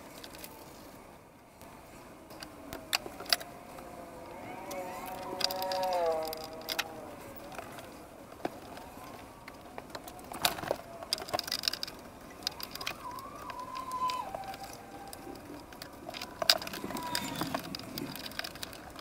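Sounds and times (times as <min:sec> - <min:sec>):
plastic parts clicking and knocking: 0:02.3 - 0:03.9, 0:04.6 - 0:19.0
faint wavering squeak: 0:12.5 - 0:17.7.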